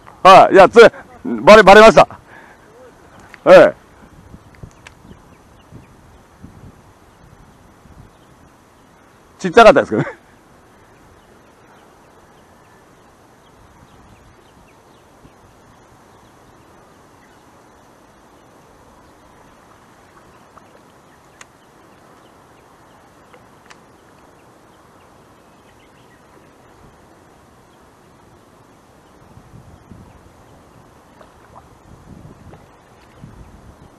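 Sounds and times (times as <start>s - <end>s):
low steady hiss: 0.0s - 33.9s
sharp clicks: 21.4s - 21.6s.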